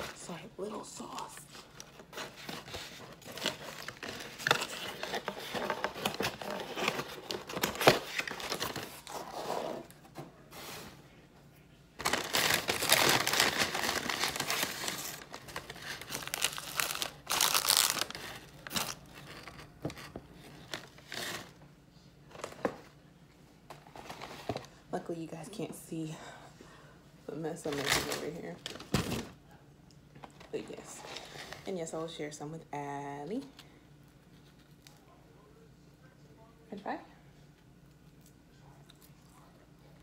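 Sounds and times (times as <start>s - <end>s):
paper packaging crinkling: 1.2s - 9.9s, 12.0s - 21.5s.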